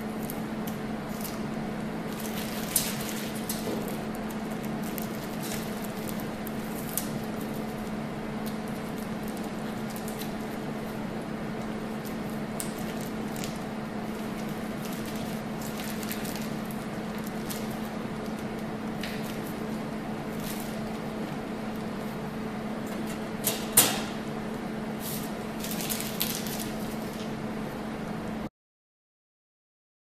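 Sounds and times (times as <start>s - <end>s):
steady hum and hiss: 0.0s - 28.5s
plastic drape crinkling: 2.1s - 11.0s, 12.0s - 19.7s, 20.3s - 21.8s, 25.0s - 27.3s.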